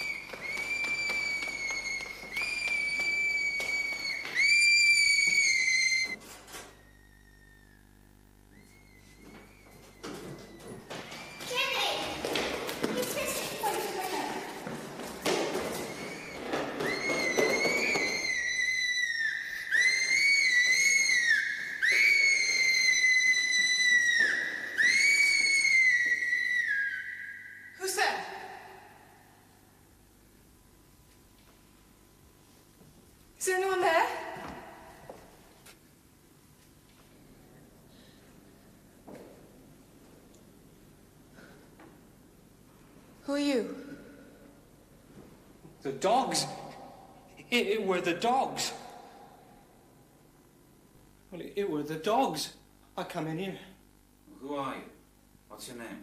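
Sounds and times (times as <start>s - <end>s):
girl screaming: 0.0s - 6.2s, 10.0s - 12.2s, 15.8s - 28.6s
long high whistle blasts: 0.0s - 6.2s, 15.8s - 27.9s.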